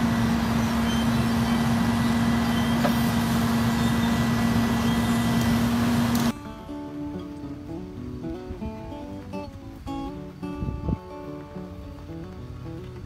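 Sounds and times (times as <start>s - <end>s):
truck engine humming: 0.0s - 10.4s
acoustic guitar strumming: 0.0s - 13.0s.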